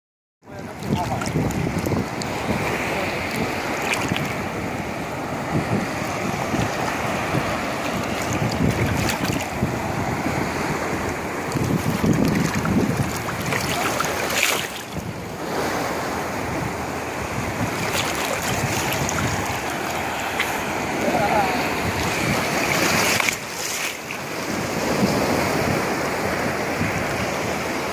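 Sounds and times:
sea water lapping: 0.5 - 27.9
wind buffeting microphone: 0.5 - 27.9
water splashing off net: 12.0 - 14.9.

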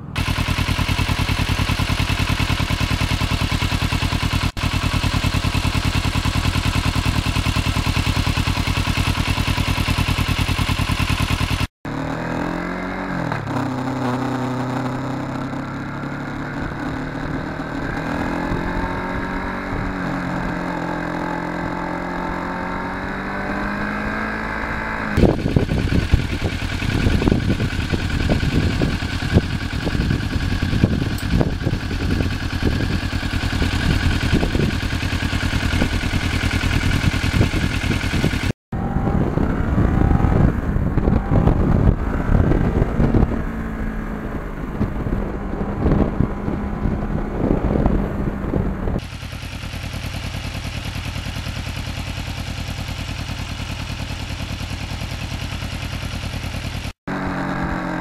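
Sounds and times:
motorcycle engine running: 0.0 - 58.0
gusty wind noise: 25.1 - 49.0.

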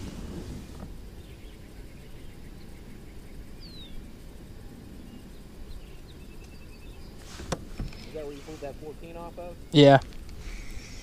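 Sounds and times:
low outdoor rumble: 0.0 - 11.0
faint bird chirps: 1.0 - 8.6.

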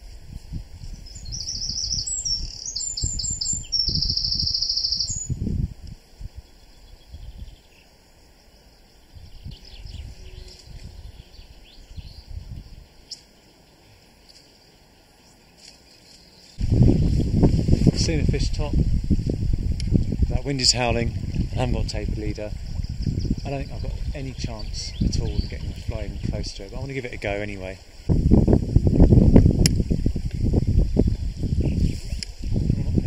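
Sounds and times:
wind buffeting microphone: 0.0 - 7.8, 9.0 - 13.0, 16.6 - 33.0
songbird singing trilled phrases: 0.9 - 5.4, 6.2 - 17.2, 19.9 - 28.1.

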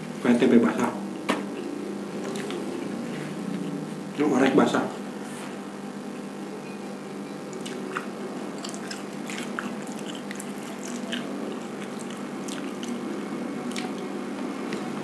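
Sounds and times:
steady low hum: 0.0 - 15.0
man chewing with wet mouth clicks: 1.6 - 2.6, 7.5 - 14.9.

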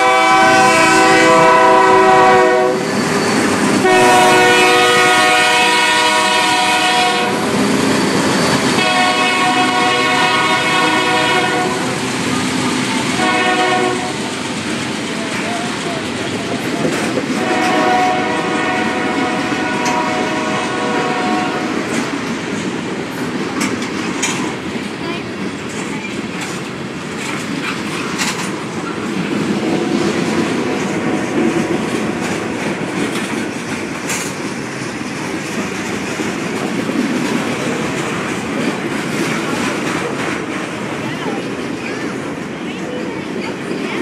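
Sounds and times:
train horn: 0.0 - 3.0, 3.8 - 7.6, 8.8 - 12.1, 13.1 - 14.3, 17.3 - 21.8
train wheels rumbling and clacking: 0.0 - 44.0.

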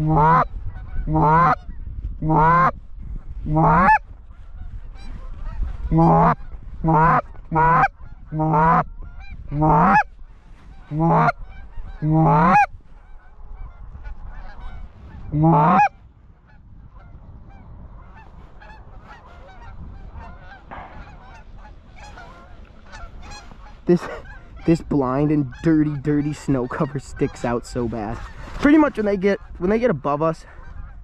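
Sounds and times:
goose call honks: 0.0 - 2.8, 3.4 - 4.0, 4.6 - 10.1, 10.7 - 29.8
flock of geese honking: 0.0 - 31.0.

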